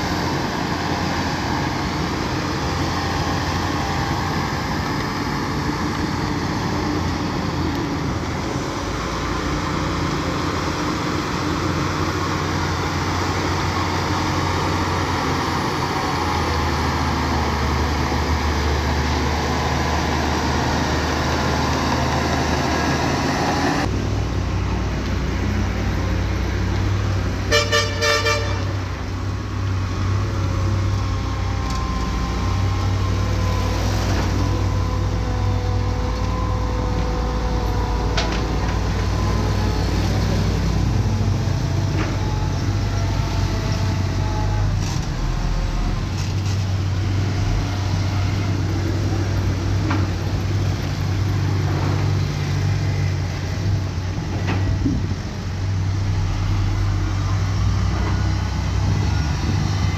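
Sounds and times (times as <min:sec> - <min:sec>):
diesel machinery running: 0:00.0 - 0:59.9
vehicle horn toots: 0:27.5 - 0:28.8.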